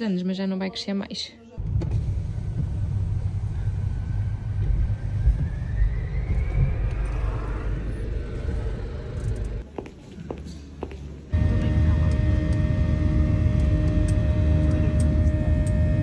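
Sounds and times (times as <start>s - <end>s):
vehicle rumble: 1.6s - 9.6s, 11.3s - 16.0s
faint rising whine: 1.9s - 9.6s, 11.3s - 16.0s.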